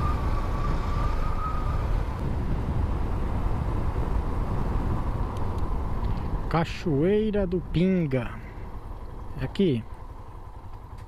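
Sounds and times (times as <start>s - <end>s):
wind noise on microphone: 0.0s - 6.6s
motorcycle engine rumbling: 0.0s - 11.0s.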